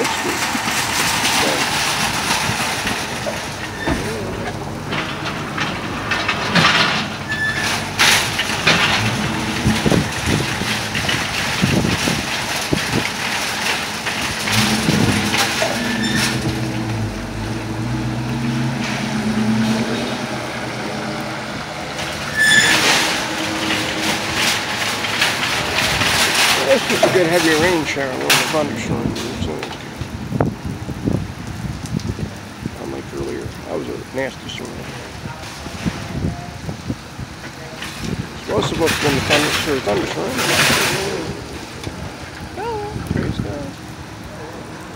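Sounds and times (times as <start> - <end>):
shopping carts rattling: 0.0 - 17.4, 21.9 - 29.9, 37.6 - 41.8
heavy rain pouring: 0.0 - 44.9.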